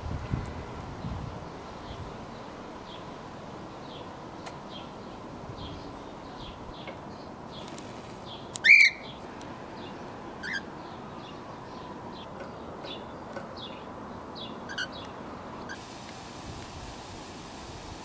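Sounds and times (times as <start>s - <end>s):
faint high bird chirping: 3.8s - 9.2s, 9.8s - 15.8s
cockatiel chirps: 8.6s - 9.0s.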